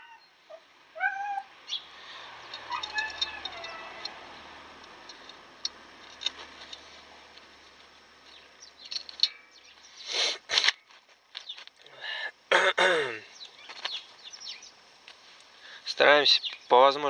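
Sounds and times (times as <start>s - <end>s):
metal rasping and clanking: 2.4s - 4.2s
metal brake parts clicking: 2.4s - 9.6s.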